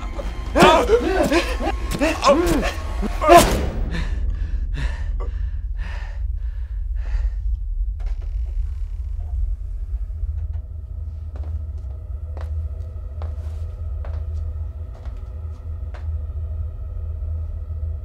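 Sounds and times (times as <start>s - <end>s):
steady low rumble: 0.0s - 18.0s
person gasping for breath: 3.8s - 7.4s.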